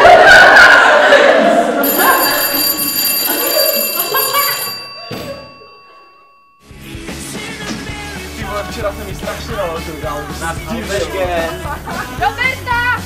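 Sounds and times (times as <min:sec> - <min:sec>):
people laughing: 0:01.4 - 0:05.7, 0:10.7 - 0:12.6
steady ringing tone: 0:01.8 - 0:07.6.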